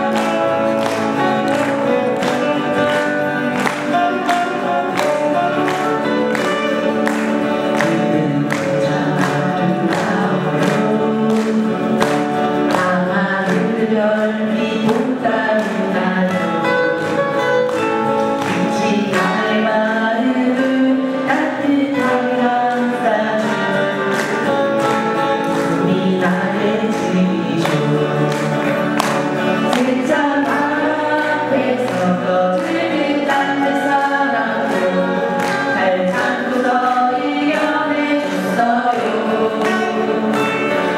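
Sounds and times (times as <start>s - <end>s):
acoustic guitars strumming: 0.0s - 40.9s
women singing together: 7.7s - 16.6s, 18.5s - 24.4s, 25.7s - 40.9s.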